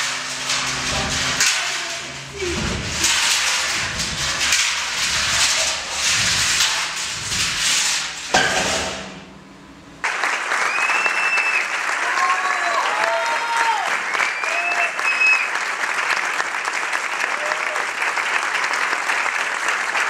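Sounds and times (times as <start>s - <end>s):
steel drum rolling on wooden floor: 0.0s - 10.2s
heavy thud: 0.4s - 10.0s
applause: 10.0s - 20.0s.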